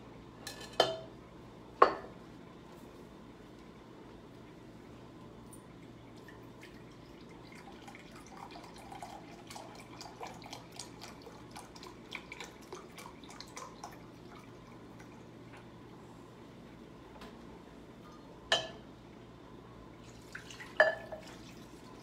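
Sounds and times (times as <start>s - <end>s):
broth trickling into cup: 5.6s - 15.6s, 20.0s - 22.0s.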